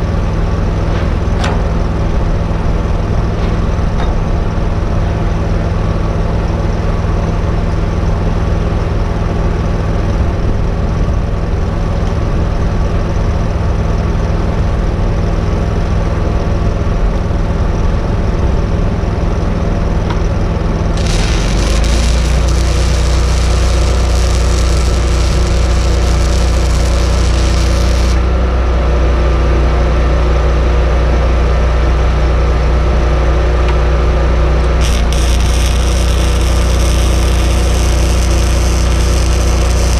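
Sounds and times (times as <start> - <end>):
welding machine engine running: 20.9 - 28.4, 34.7 - 39.9
loud hiss: 21.0 - 28.2, 34.8 - 39.9.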